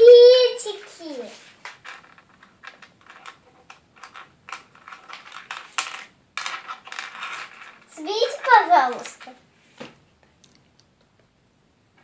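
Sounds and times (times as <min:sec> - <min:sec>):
rustling: 0:00.5 - 0:10.6
plastic toy pieces clicking: 0:01.7 - 0:09.3.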